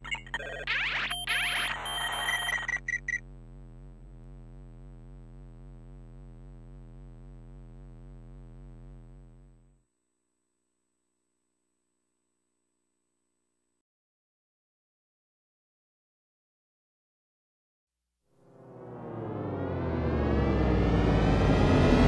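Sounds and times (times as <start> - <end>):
electronic beeps and chirps: 0.0 - 3.2
warbling electronic hum: 0.0 - 9.8.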